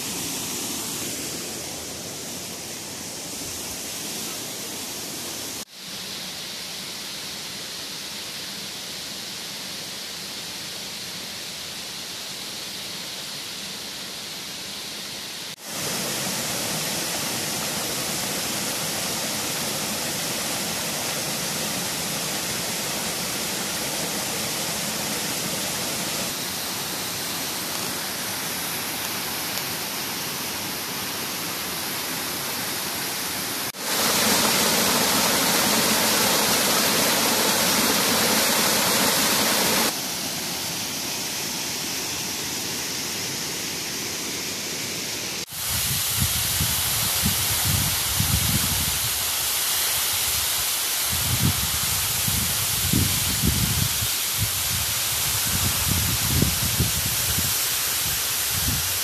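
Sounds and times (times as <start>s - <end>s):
waterfall rushing: 0.0s - 5.7s, 15.6s - 51.3s.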